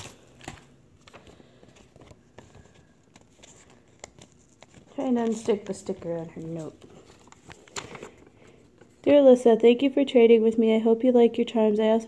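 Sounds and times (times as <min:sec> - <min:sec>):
package material rustling: 0:00.0 - 0:09.0.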